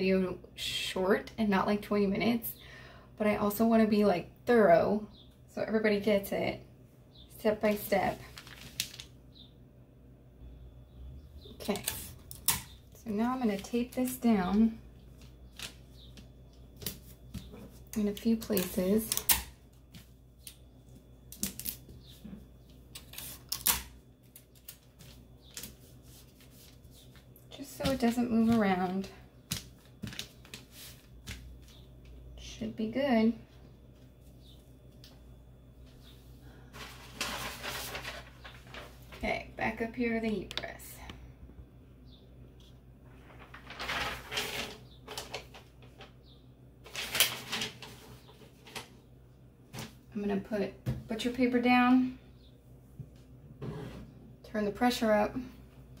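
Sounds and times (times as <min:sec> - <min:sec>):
paper and tape crinkling and clicking: 0:07.6 - 0:09.2, 0:11.6 - 0:12.8, 0:13.4 - 0:20.6, 0:21.3 - 0:22.2, 0:22.9 - 0:31.8, 0:36.8 - 0:39.3, 0:43.2 - 0:46.2, 0:46.8 - 0:48.9.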